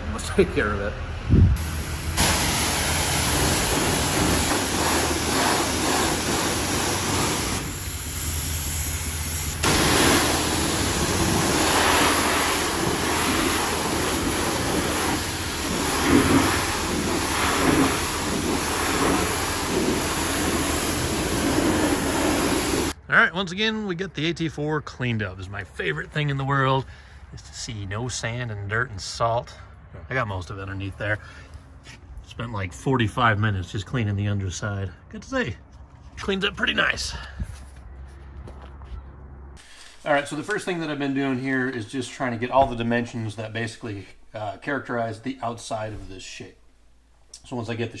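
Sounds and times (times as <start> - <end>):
pressure washer spraying water: 1.6 - 23.0.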